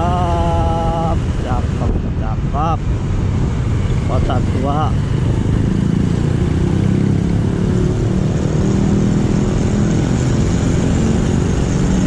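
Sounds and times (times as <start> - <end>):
road and wind noise: 0.0 - 12.0
motorcycle engine running: 2.9 - 12.0.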